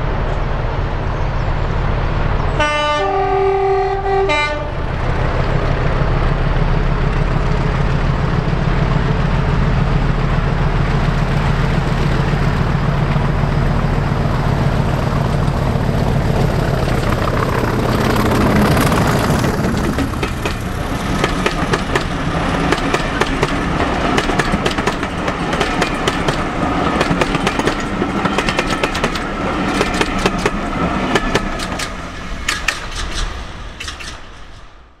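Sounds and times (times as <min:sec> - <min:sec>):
diesel locomotive engine drone: 0:00.0 - 0:35.0
train wheels clattering over rail joints: 0:15.0 - 0:35.0.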